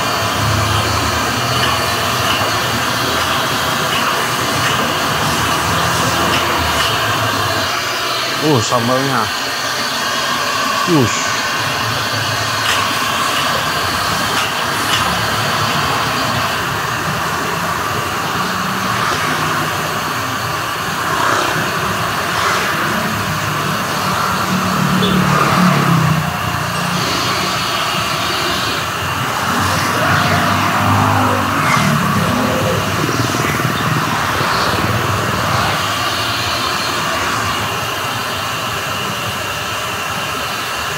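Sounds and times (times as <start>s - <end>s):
gas wok burner roaring: 0.0s - 40.9s
street traffic: 0.0s - 40.9s.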